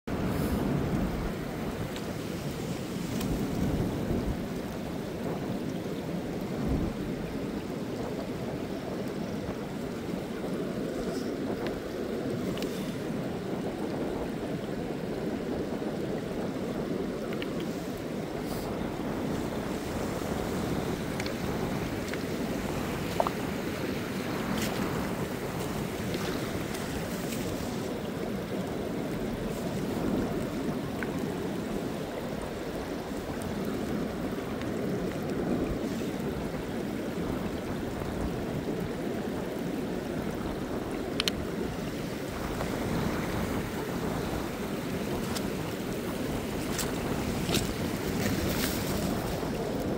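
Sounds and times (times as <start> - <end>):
wind buffeting microphone: 0.0 - 49.9
ocean surf: 0.1 - 49.9
faint clicks: 17.3 - 17.7, 41.2 - 41.4.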